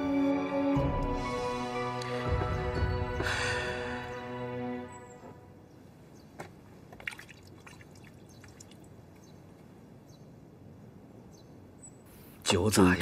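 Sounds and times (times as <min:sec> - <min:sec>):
wine pouring and splashing: 0:07.0 - 0:08.9.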